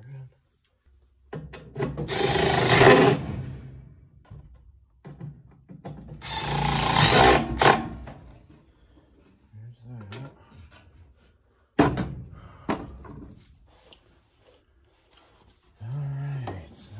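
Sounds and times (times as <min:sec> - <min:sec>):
small power tool motor running: 0:06.2 - 0:07.8.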